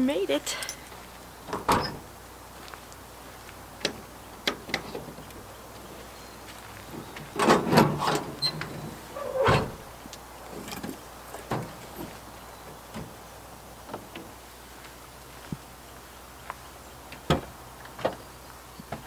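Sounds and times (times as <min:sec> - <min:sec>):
latch clicks: 0:03.8 - 0:05.3
glass hatch rattling scrape: 0:07.4 - 0:09.8
tailgate dropping thunk: 0:07.4 - 0:09.9.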